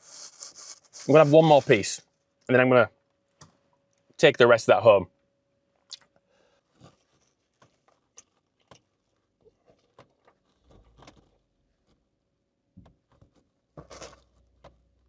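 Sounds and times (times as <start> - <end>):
man chewing: 6.8 - 11.3.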